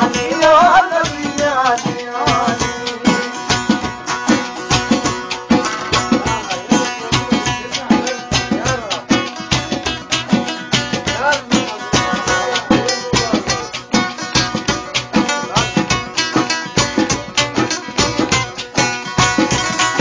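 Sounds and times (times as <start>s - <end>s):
person singing: 0.0s - 3.6s
drums keeping a steady beat: 0.0s - 20.0s.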